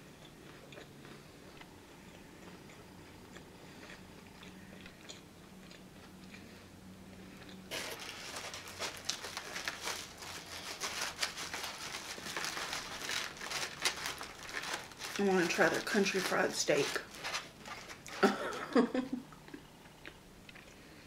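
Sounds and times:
quiet chewing: 0.0 - 7.9, 19.3 - 21.0
aluminium foil crinkling: 7.7 - 18.5.

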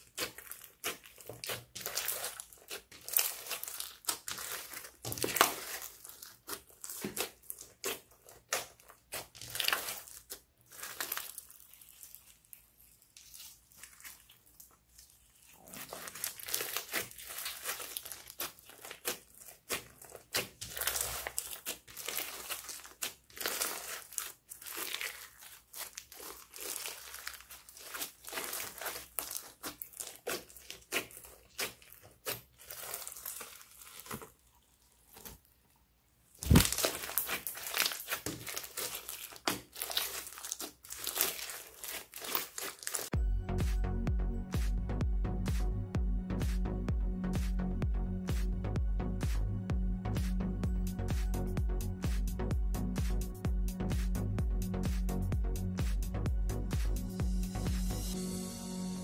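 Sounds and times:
slime crackling and popping: 0.0 - 35.4, 36.3 - 43.2.

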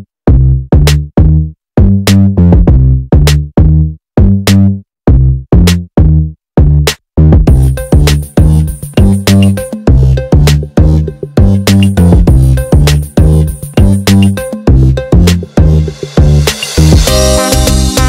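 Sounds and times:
electronic drum machine beat: 7.4 - 18.0.

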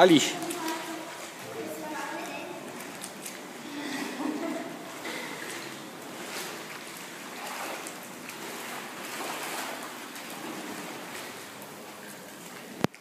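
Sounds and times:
person wading through water: 0.0 - 13.0
pool water rushing and sloshing: 0.0 - 13.0.

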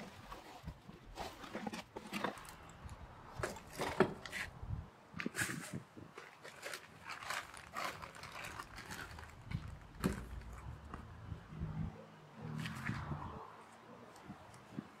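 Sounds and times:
plastic rustles and clicks: 0.0 - 4.5, 5.2 - 11.0.

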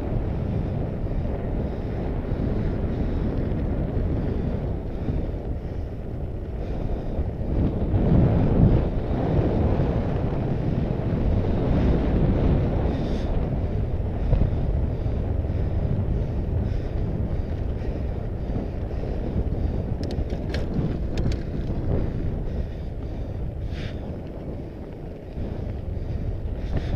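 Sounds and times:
bike tyres rolling on gravel: 0.0 - 26.9
wind buffeting microphone: 0.0 - 26.9
faint clicks: 19.9 - 21.8.

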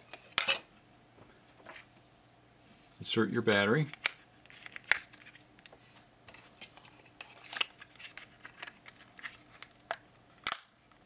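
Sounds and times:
plastic cover snap: 7.4 - 11.0.

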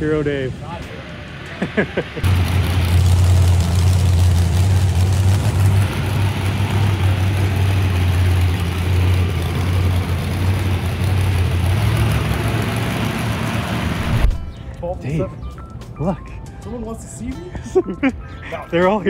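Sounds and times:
vehicle engine idling: 2.2 - 14.8.

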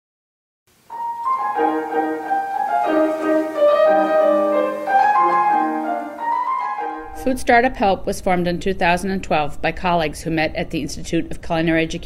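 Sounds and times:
instrumental background music: 0.9 - 7.5.

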